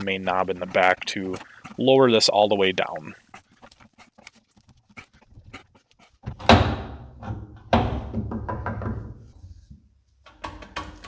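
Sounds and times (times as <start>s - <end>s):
heavy metallic clunks: 6.2s - 8.9s
small rattling knocks: 6.2s - 9.4s, 10.2s - 11.0s.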